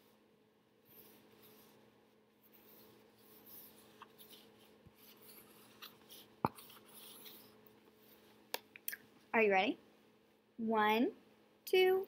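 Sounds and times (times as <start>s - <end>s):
marker scratching on whiteboard: 0.8s - 1.8s, 2.4s - 8.2s.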